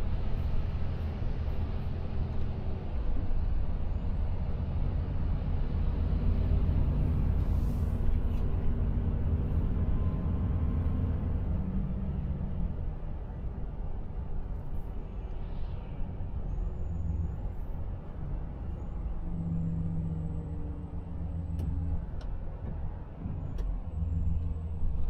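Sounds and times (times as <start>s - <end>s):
truck diesel engine drone: 0.0s - 25.0s.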